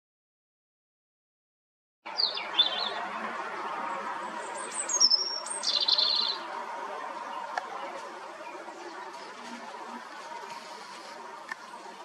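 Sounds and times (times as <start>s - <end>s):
robin singing: 2.1s - 11.0s.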